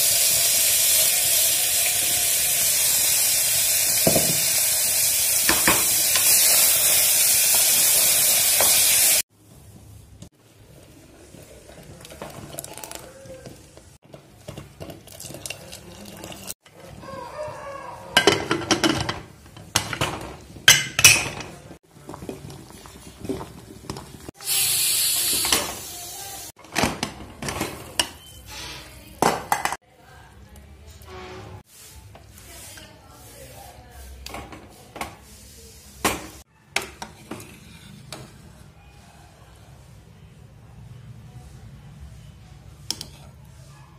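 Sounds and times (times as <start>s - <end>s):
oil bubbling and sizzling: 0.0s - 9.3s, 10.9s - 16.6s, 21.8s - 26.6s
utensil clinking against pots: 12.0s - 17.0s, 18.2s - 24.2s.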